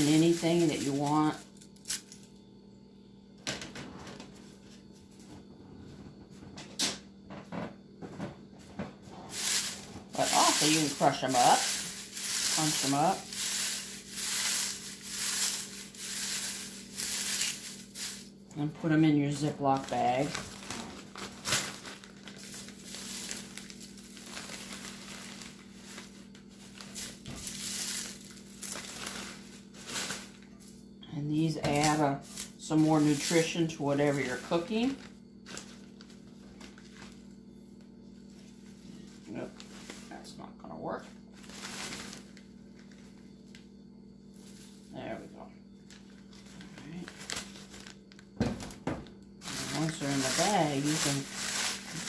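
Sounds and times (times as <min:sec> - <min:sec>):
plastic bag crinkling: 0:00.0 - 0:02.2, 0:09.3 - 0:30.4, 0:31.6 - 0:37.2, 0:41.4 - 0:43.0, 0:45.9 - 0:48.7, 0:49.4 - 0:52.0
dried leaves crackling: 0:00.0 - 0:02.3, 0:09.3 - 0:30.5, 0:31.5 - 0:37.3, 0:38.2 - 0:40.3, 0:41.3 - 0:43.6, 0:45.8 - 0:48.4, 0:49.3 - 0:52.0
steady low hum: 0:00.0 - 0:52.0.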